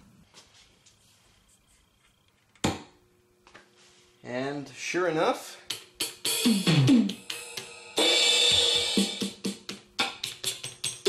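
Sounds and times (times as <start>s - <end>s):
drum machine hits: 5.7s - 11.0s.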